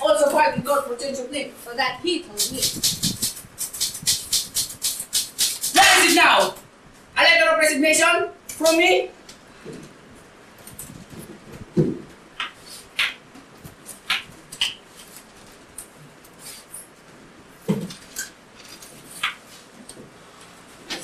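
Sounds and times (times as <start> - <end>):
dull thumps: 11.3 - 13.2.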